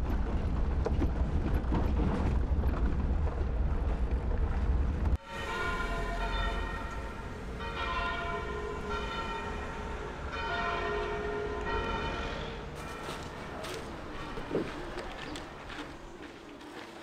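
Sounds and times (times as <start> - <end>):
wind rumble: 0.0 - 10.3
low road rumble: 0.0 - 17.0
church bells ringing: 5.2 - 14.2.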